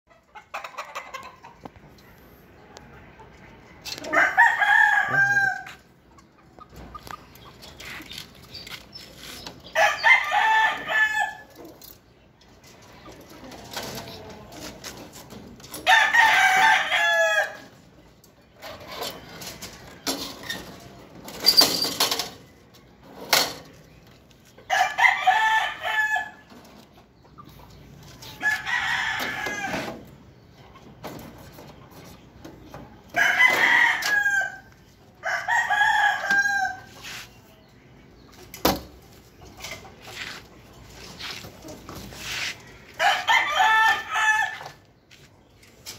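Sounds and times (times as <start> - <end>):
rooster crowing: 4.1 - 5.8, 42.9 - 44.8.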